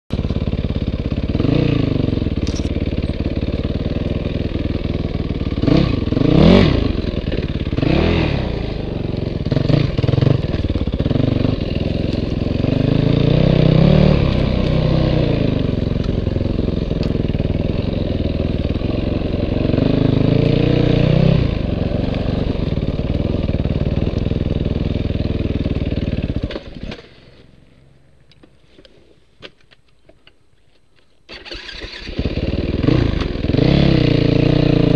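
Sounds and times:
dirt bike engine revving: 0.2 - 27.0, 31.4 - 34.9.

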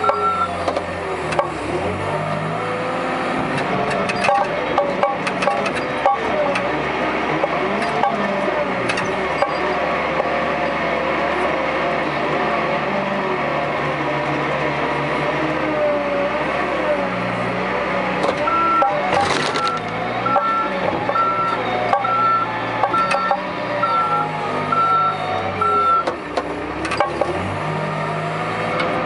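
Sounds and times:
reversing alarm beeping: 0.0 - 0.6, 18.4 - 26.2
backhoe diesel engine running: 0.0 - 29.0.

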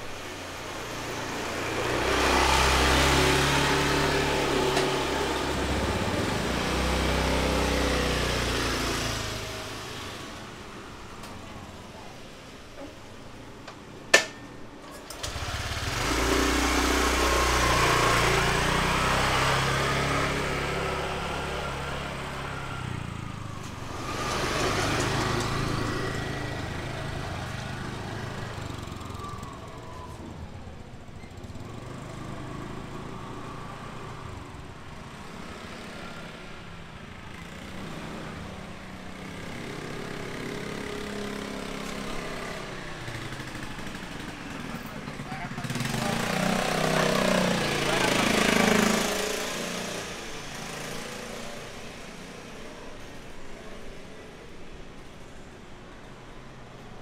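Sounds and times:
motor scooters passing: 0.0 - 57.0.

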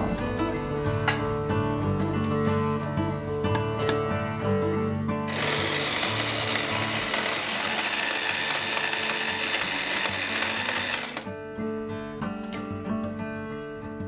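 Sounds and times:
background music: 0.0 - 14.0
electric chopper motor whine: 5.3 - 11.3.

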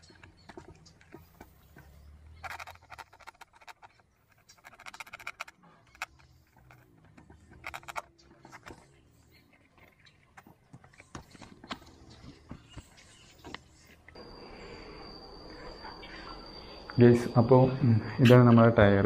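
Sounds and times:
clicking and scraping: 0.0 - 14.2.

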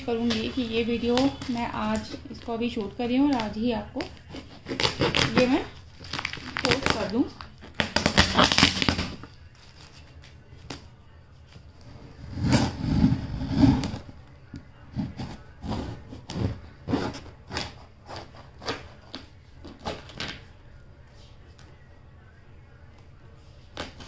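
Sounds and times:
plastic wrap crinkling: 0.0 - 10.4
knife cutting packing tape: 3.3 - 9.9, 15.1 - 19.2.

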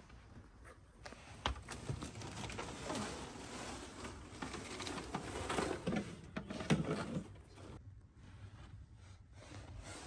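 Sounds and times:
cables rustling and scraping: 0.0 - 7.8.

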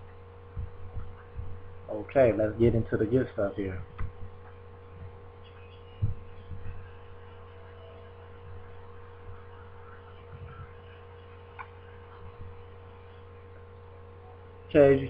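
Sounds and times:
soft low thumps: 0.0 - 1.9, 3.8 - 7.3, 11.6 - 12.8
electrical mains hum: 0.0 - 15.0.

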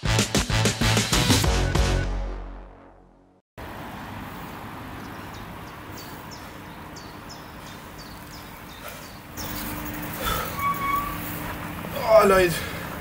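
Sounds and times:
outdoor background noise: 3.6 - 13.0.

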